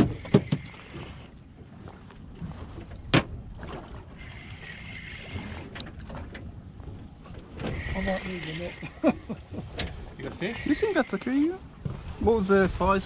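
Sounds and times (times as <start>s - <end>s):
water around a boat: 0.0s - 13.0s
wind: 0.0s - 13.0s.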